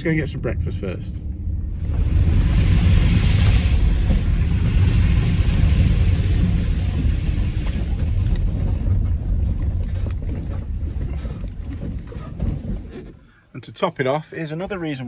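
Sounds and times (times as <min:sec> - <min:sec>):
van engine and tyres rumbling: 0:00.0 - 0:13.4
water hissing under wheels: 0:01.8 - 0:09.5
stones ticking under tyres: 0:03.9 - 0:12.9.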